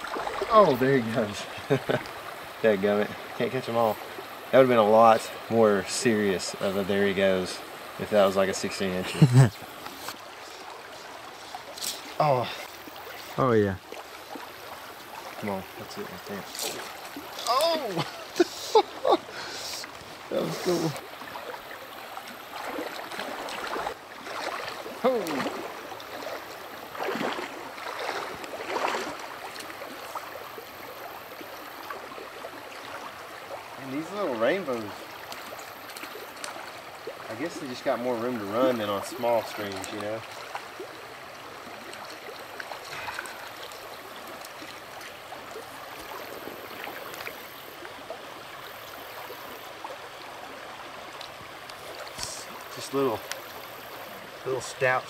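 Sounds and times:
river running over rocks: 0.0s - 55.0s
small water splashes: 0.0s - 55.0s
brief splashes: 19.6s - 30.5s, 41.6s - 47.6s.

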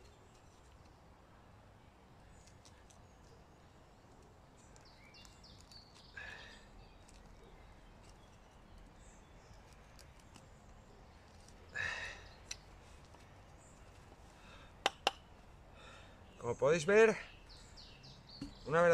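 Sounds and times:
low steady hiss: 0.0s - 18.9s
bird chirps: 4.6s - 12.7s, 16.2s - 18.9s.

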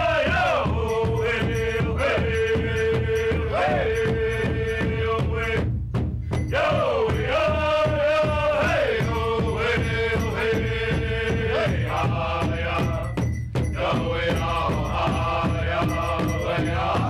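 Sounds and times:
group singing long held notes: 0.0s - 5.7s, 6.5s - 17.0s
large drum steady beat: 0.0s - 17.0s.

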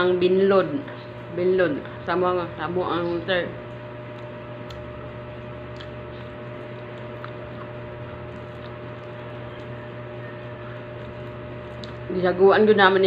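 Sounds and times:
steady background hum: 0.0s - 13.0s
chewing: 4.1s - 9.9s, 10.5s - 12.1s.

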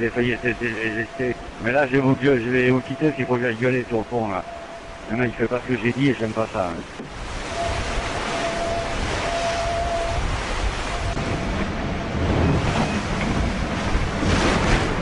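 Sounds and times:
wind and rushing water: 0.0s - 15.0s
thin steady whistle: 7.5s - 10.2s.

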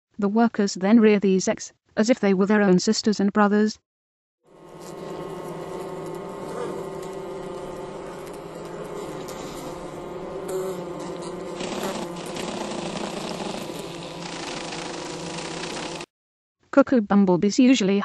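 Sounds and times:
bumblebees buzzing: 4.5s - 16.1s
hissy rustle: 4.5s - 16.1s.

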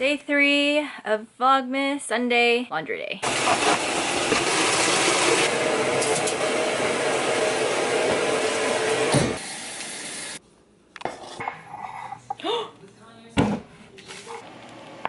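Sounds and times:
washing machine filling with water: 6.4s - 10.4s.

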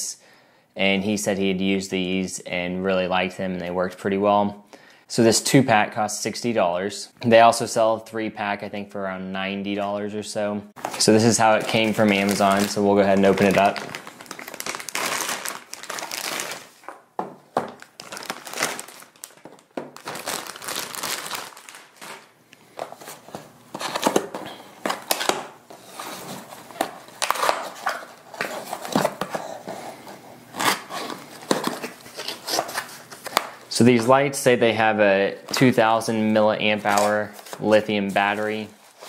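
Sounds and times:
plastic bag crinkling: 10.8s - 17.0s, 17.6s - 29.1s.

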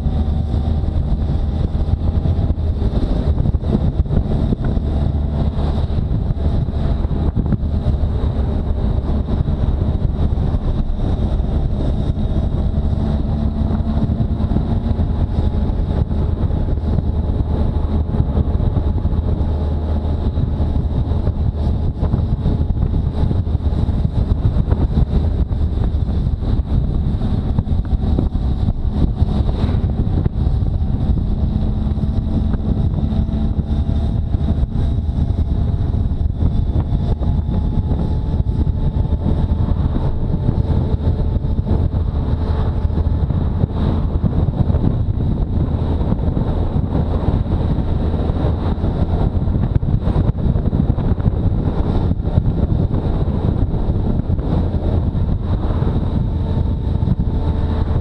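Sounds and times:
motorcycle engine cruising: 0.0s - 58.0s
wind noise on microphone: 0.0s - 58.0s.

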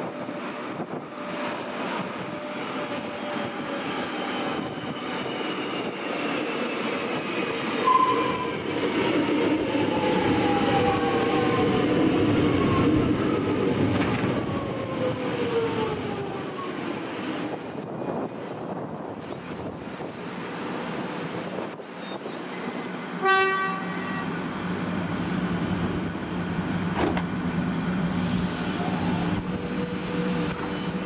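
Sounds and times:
train rumble: 0.0s - 31.0s
brake squeal: 27.7s - 29.0s.

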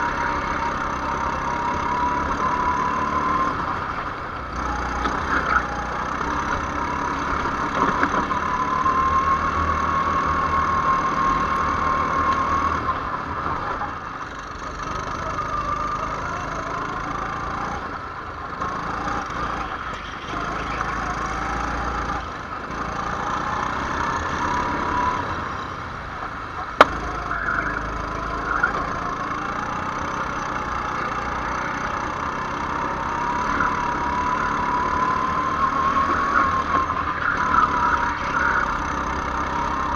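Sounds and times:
go-kart engine revving: 0.0s - 39.9s.

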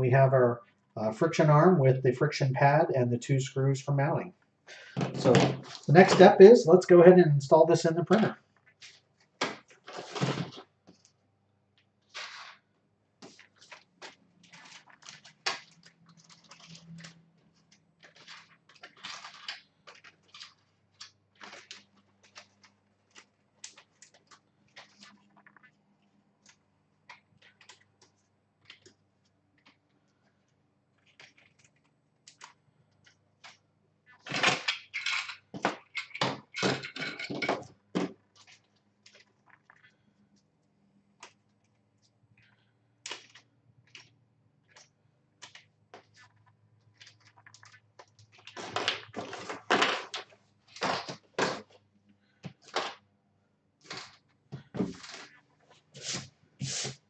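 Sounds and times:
plastic parts clicking and clattering: 13.2s - 25.7s, 31.0s - 39.9s, 42.4s - 51.8s, 52.4s - 53.0s, 53.8s - 55.4s.

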